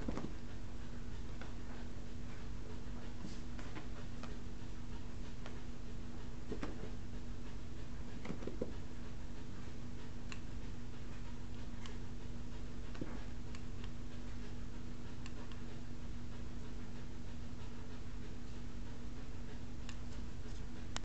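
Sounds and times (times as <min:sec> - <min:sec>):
cat paws tapping on carpet: 0:00.0 - 0:09.0
steady low hum: 0:00.0 - 0:21.0.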